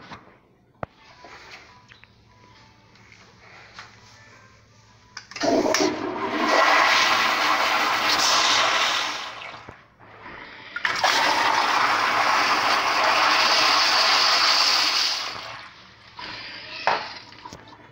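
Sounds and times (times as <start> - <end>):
toilet flushing: 5.3 - 9.8, 10.8 - 15.8.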